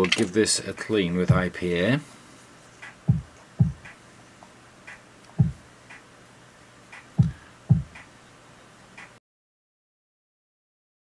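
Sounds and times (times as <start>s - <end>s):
soft low thumps: 1.3s - 1.6s, 3.1s - 3.9s, 5.4s - 5.6s, 7.2s - 8.0s.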